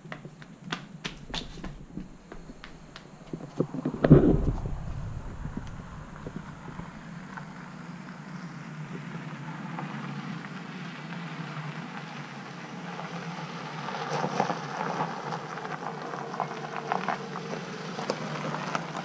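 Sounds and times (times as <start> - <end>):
tyres crunching on gravel: 0.0 - 7.6
car driving slowly: 0.0 - 19.0
sharp crackles: 1.1 - 7.6.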